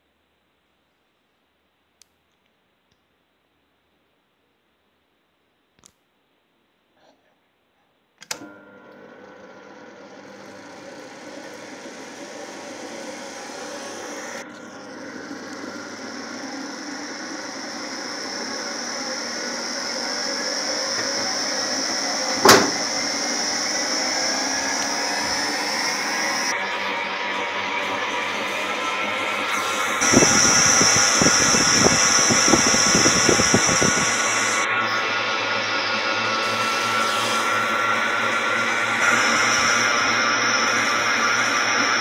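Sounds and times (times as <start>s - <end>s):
electric motor whine: 8.4s - 42.0s
sharp knock: 22.4s - 22.9s.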